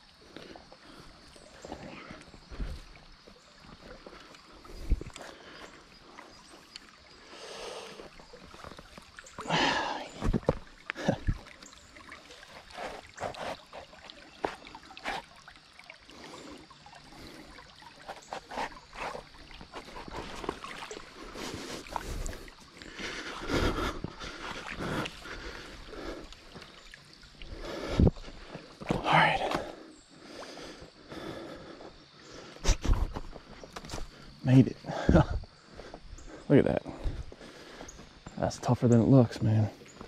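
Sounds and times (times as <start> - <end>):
stream water over rocks: 0.0 - 40.0
footsteps splashing in water: 17.9 - 29.7.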